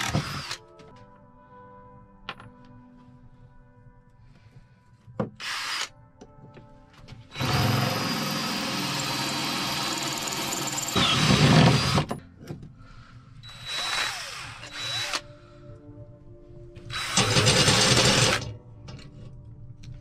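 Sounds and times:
drill boring through steel: 0.0 - 0.6, 5.4 - 5.9, 7.3 - 12.1, 13.4 - 15.2, 16.9 - 18.5.

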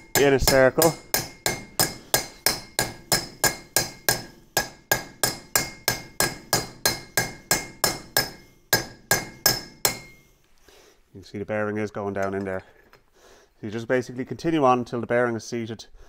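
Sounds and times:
hammer tapping metal bearing: 0.0 - 10.3.

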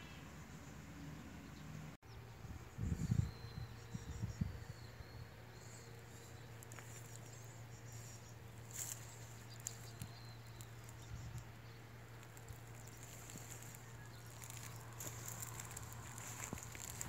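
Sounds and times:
low steady hum: 0.0 - 17.0
soft clicks and rustles: 8.6 - 11.5, 12.1 - 17.0.

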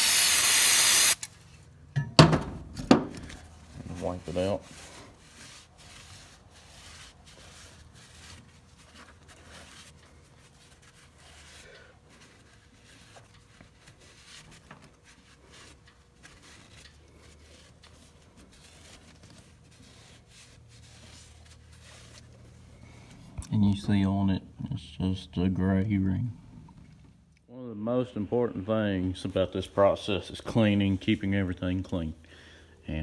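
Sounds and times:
cloth rag rubbing metal: 3.5 - 22.8.

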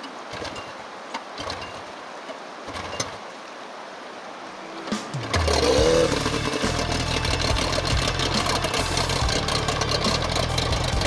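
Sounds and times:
short rising-and-falling note: 4.6 - 10.4
outboard engine running: 5.2 - 11.0.

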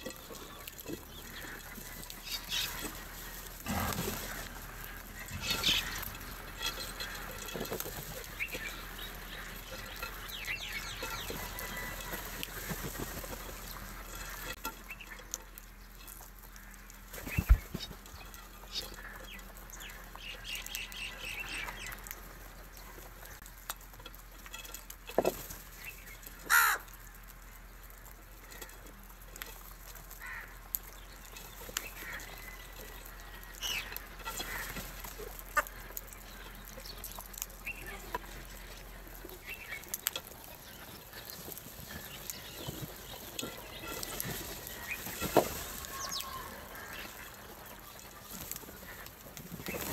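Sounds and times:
crows calling: 0.0 - 49.9
wings flapping: 17.1 - 18.0.

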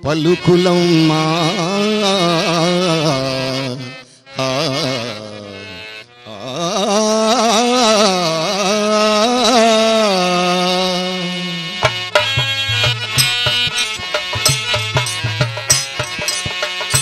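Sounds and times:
man singing long ornamented vowel: 0.0 - 11.9
tabla strokes: 11.8 - 17.0.

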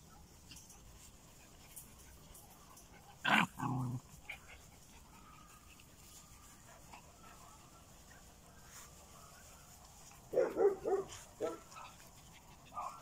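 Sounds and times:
dog barking: 10.3 - 11.9.

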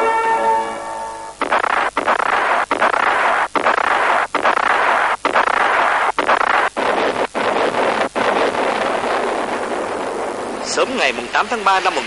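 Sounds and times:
massed gunfire: 1.4 - 10.5
shell explosions: 1.4 - 11.0.

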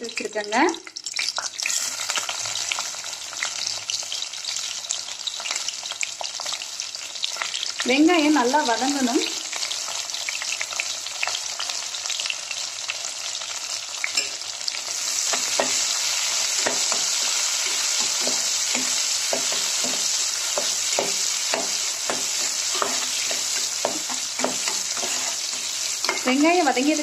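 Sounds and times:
onions sizzling in oil: 0.0 - 27.0
metal spoon scraping a pot: 16.6 - 26.4.

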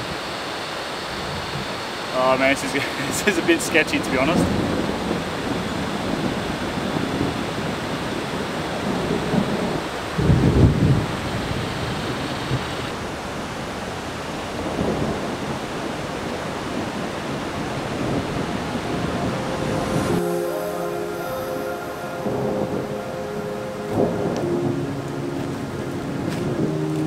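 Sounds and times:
light rain: 0.0 - 27.0
thunder rumbling: 14.6 - 27.0
wind rushing: 16.8 - 26.9.

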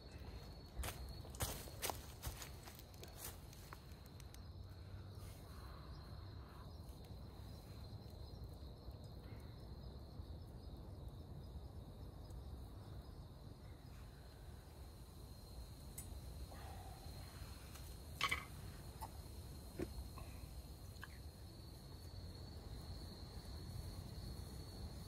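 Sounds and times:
crickets trilling: 0.0 - 25.0.

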